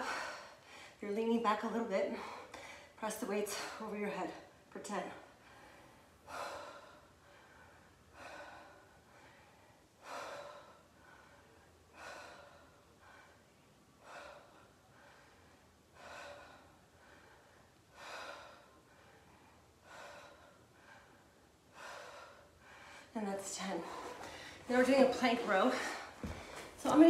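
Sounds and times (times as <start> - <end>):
woman breathing hard: 0.0 - 1.0, 2.1 - 3.8, 5.2 - 26.8.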